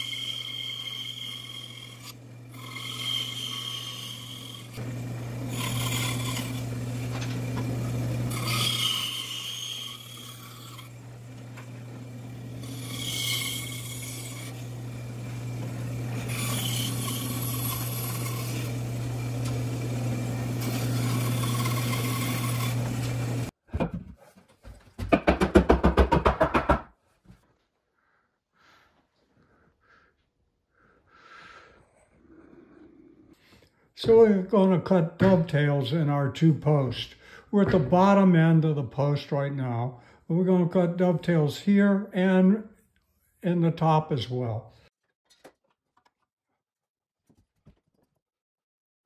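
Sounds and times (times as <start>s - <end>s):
bandsaw motor hum: 0.0s - 23.6s
saw rasping through wood: 0.0s - 23.6s.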